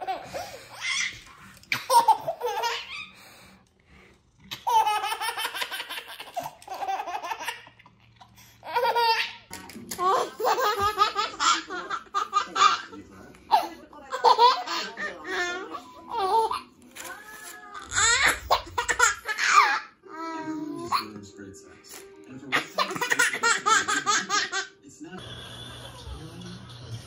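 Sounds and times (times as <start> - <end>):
baby laughing: 0.0 - 3.2, 4.5 - 16.7, 17.8 - 21.2, 22.5 - 24.7.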